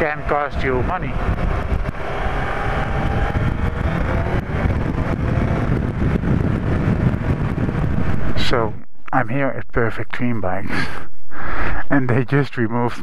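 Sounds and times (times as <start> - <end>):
motorcycle engine running: 0.0 - 8.5
wind noise on microphone: 0.0 - 11.9.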